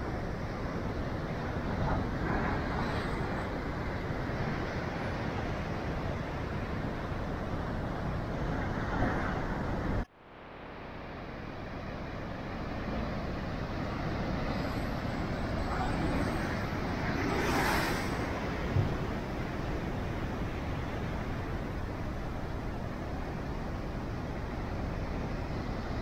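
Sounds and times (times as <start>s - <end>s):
loud wave crash: 16.2s - 19.5s.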